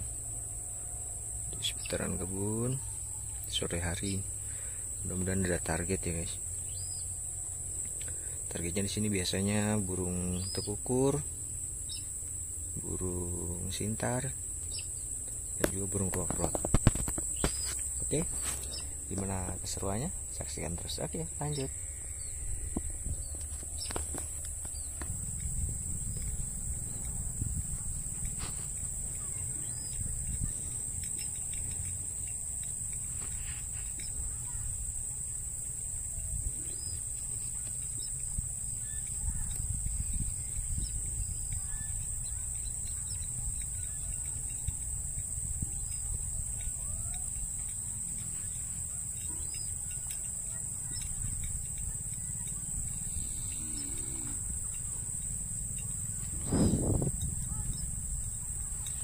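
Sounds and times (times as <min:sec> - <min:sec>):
faint bird chirps: 0:00.0 - 0:59.0
insects trilling: 0:00.0 - 0:59.0
wind rumble: 0:11.3 - 0:47.9, 0:50.8 - 0:59.0.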